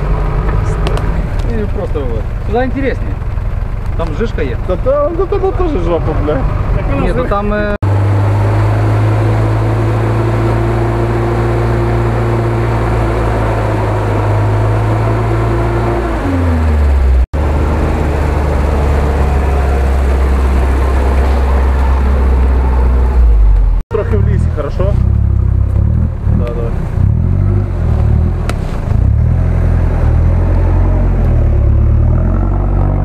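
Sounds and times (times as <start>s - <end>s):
winch mechanical drone: 17.4s - 23.6s.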